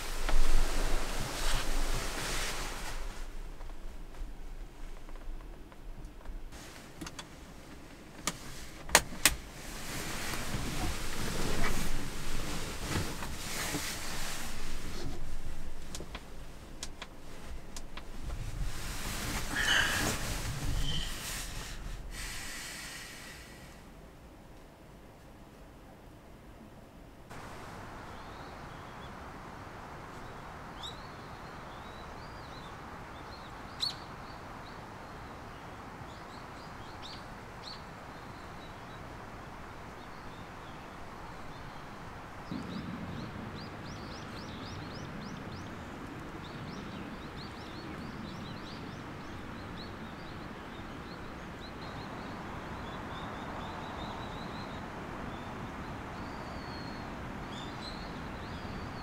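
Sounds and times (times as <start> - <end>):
outdoor background hiss: 0.0 - 59.0
small birds chirping: 18.6 - 23.6, 30.1 - 59.0.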